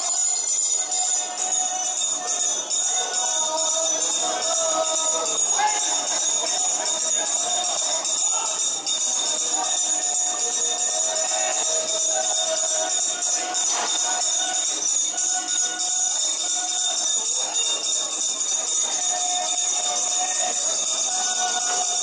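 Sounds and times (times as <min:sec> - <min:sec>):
hand bell ringing rapidly: 0:00.0 - 0:22.0.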